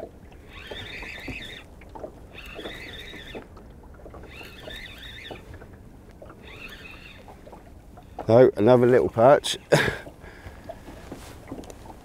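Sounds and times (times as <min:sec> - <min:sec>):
fishing reel winding: 0:00.4 - 0:01.7, 0:02.3 - 0:03.4, 0:04.2 - 0:05.4, 0:06.4 - 0:07.3.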